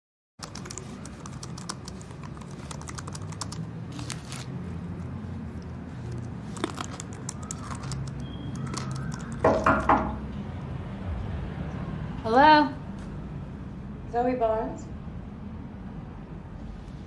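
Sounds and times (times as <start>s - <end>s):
typing on laptop keyboard: 0.4s - 4.1s, 6.1s - 9.8s.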